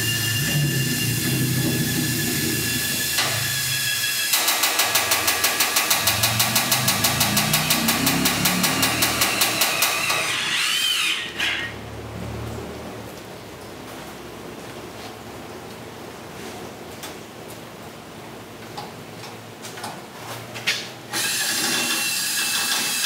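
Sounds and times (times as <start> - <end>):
short squeal: 0.0 - 4.4.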